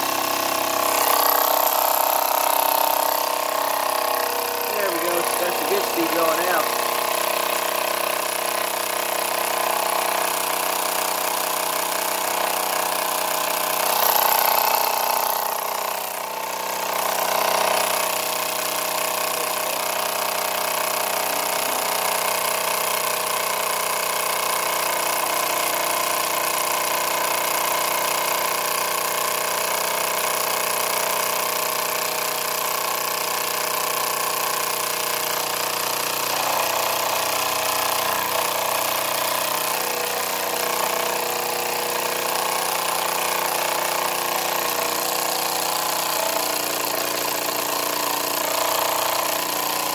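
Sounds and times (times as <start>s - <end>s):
toy steam engine hissing and whirring: 0.0s - 11.4s, 27.2s - 49.9s.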